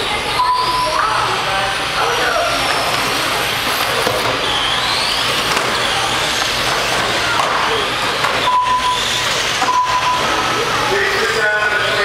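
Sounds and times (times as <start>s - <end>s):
rc car motors whining: 0.0s - 12.0s
short steady beeps: 0.4s - 1.0s, 8.4s - 10.3s.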